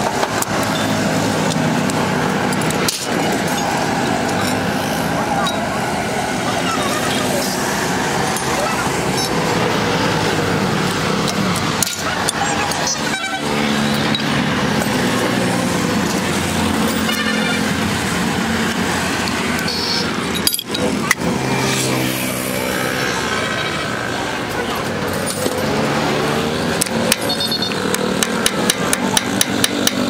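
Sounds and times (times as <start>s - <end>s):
traffic noise: 0.0s - 30.0s
car horns: 12.7s - 14.2s, 16.8s - 17.9s, 19.6s - 20.2s, 27.1s - 28.0s.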